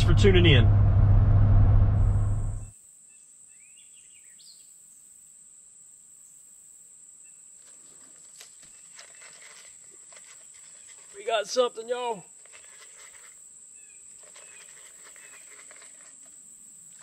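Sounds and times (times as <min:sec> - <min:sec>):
road noise inside truck cab: 0:00.0 - 0:02.7
faint clicks and rustles: 0:07.6 - 0:11.4, 0:12.3 - 0:17.0.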